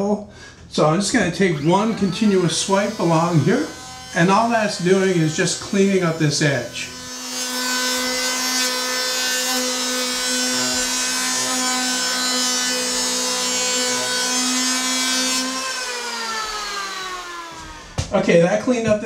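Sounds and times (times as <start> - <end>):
electric planer cutting wood: 1.0 - 18.1
planer motor spinning down: 1.3 - 8.4, 9.4 - 18.0.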